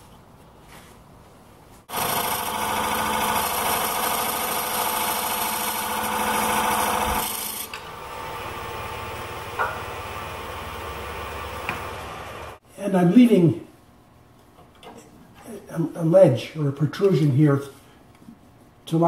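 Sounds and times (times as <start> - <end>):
wood lathe spinning: 1.9 - 12.6.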